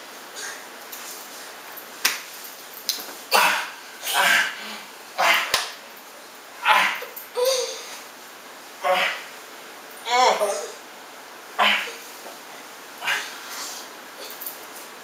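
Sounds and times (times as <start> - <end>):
sharp slaps: 2.0 - 3.0, 5.3 - 5.8
breathy grunts and huffs: 3.3 - 5.5, 13.0 - 14.4.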